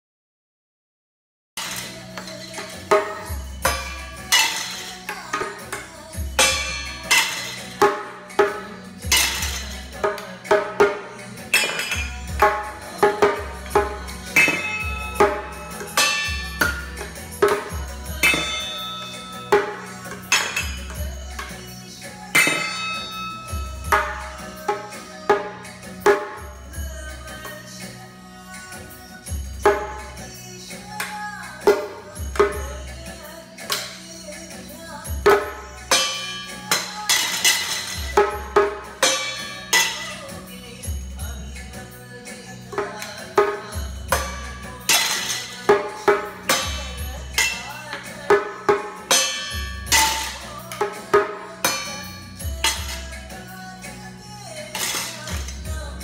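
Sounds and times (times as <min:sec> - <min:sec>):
drumsticks hitting metal pots: 0:01.6 - 0:26.5, 0:30.9 - 0:32.8, 0:33.6 - 0:34.1, 0:35.2 - 0:40.7, 0:42.7 - 0:53.6, 0:54.4 - 0:55.8
recorded song with steady beat: 0:01.6 - 0:56.0
music with low bass beat: 0:06.1 - 0:27.4, 0:51.5 - 0:54.5, 0:55.2 - 0:56.0.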